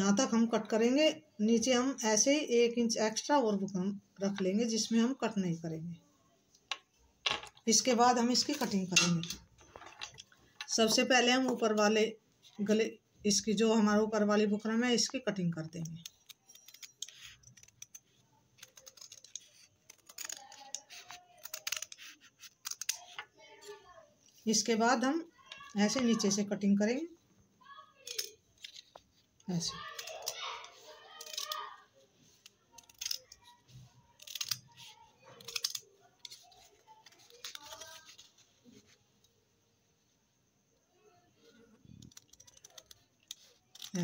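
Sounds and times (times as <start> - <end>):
scissors snipping stiff fabric: 18.6 - 23.2.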